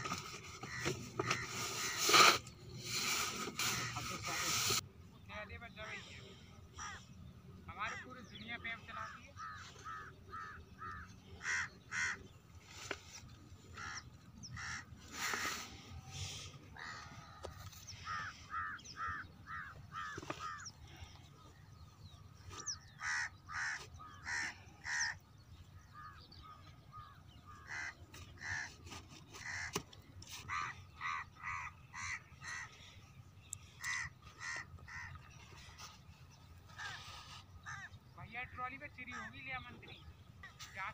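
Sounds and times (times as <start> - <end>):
crows cawing: 0.6 - 2.1, 6.7 - 7.2, 9.0 - 12.3, 13.7 - 15.5, 16.7 - 21.1, 22.8 - 25.2, 25.8 - 33.0, 33.6 - 35.3, 36.7 - 38.0.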